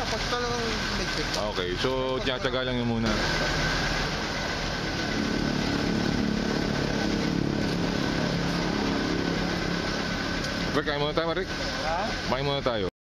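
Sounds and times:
motorcycle engine idling: 0.0s - 12.5s.

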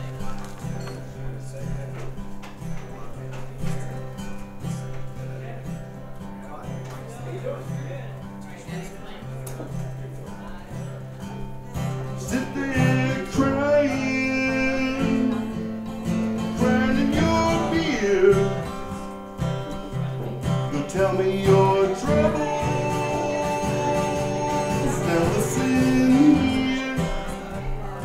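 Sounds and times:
acoustic guitar strumming: 0.0s - 28.0s
sliding melody line: 20.7s - 27.3s.

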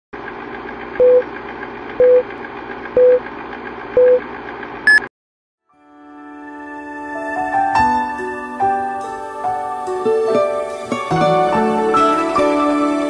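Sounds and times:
short beeps: 4.9s - 5.1s
soft music: 5.6s - 13.0s.

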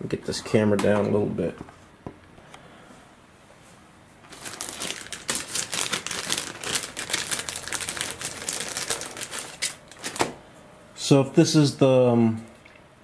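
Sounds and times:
plastic bag crinkling: 4.2s - 10.4s.

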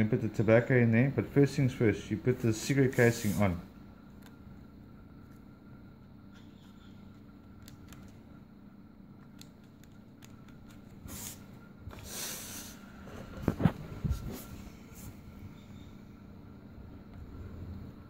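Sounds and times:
rustling scrape: 2.9s - 3.6s, 12.1s - 15.2s
small clicks and rubbing: 6.3s - 8.2s, 9.2s - 11.0s.

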